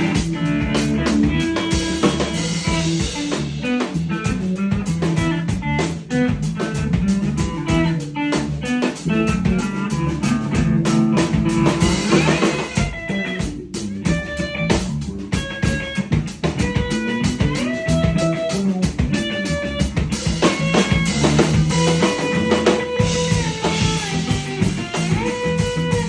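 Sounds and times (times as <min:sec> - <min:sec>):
bass guitar notes: 0:00.0 - 0:26.0
drum kit: 0:00.0 - 0:26.0
electric guitar playing lines: 0:00.0 - 0:26.0.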